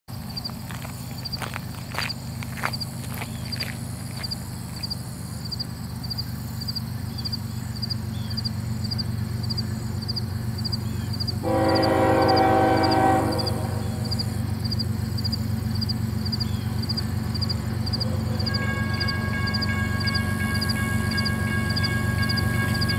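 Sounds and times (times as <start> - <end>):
diesel locomotive engine rumble: 0.1 - 22.9
locomotive air horn blast: 11.4 - 14.6, 17.6 - 22.9.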